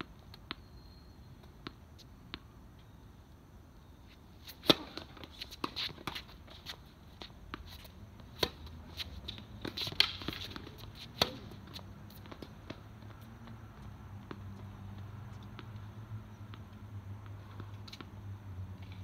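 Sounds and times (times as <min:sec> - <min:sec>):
footstep scuffs: 0:04.1 - 0:15.8
tennis ball struck by rackets: 0:04.4 - 0:06.3, 0:08.2 - 0:13.2.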